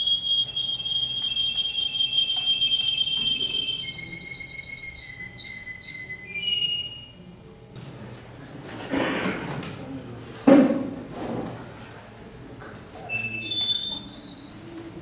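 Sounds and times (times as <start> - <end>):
canary singing trills: 0.0 - 7.1, 10.2 - 15.0.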